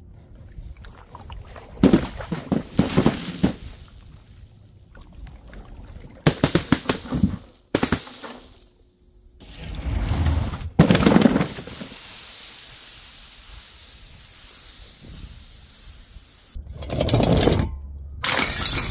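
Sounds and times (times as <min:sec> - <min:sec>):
containers crashing and smashing: 0:01.8 - 0:04.0, 0:06.2 - 0:08.7, 0:10.6 - 0:12.0, 0:18.2 - 0:18.9.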